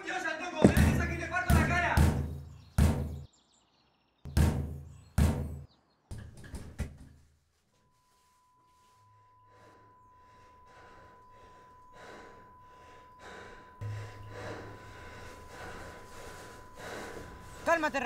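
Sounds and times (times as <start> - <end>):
low hum: 9.1 - 18.0
man gasping breaths: 9.5 - 17.7.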